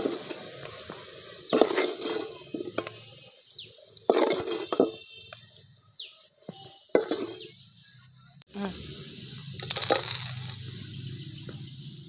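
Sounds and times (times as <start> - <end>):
wooden spatula scraping clay bowl: 1.4 - 3.3, 4.0 - 5.1, 6.4 - 7.5
food dropping into metal pot: 9.6 - 10.6.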